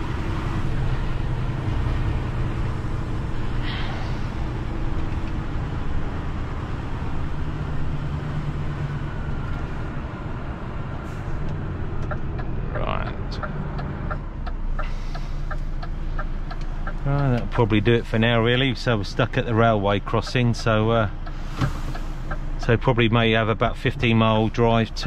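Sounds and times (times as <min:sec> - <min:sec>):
diesel engine and road noise: 0:00.0 - 0:25.0
light ticking: 0:13.4 - 0:17.6.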